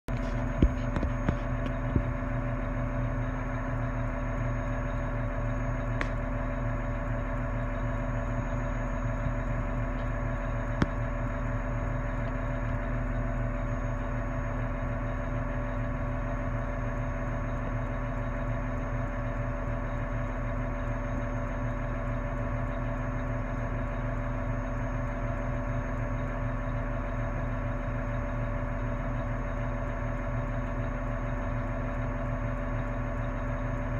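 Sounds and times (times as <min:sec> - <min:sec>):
engine idling: 0:00.0 - 0:33.9.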